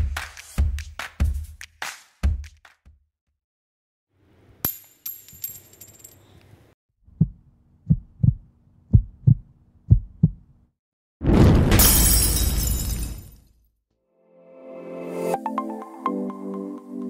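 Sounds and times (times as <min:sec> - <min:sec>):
metallic clink with high ring: 0:04.7 - 0:06.4
heartbeat-like low thumps: 0:07.1 - 0:10.5.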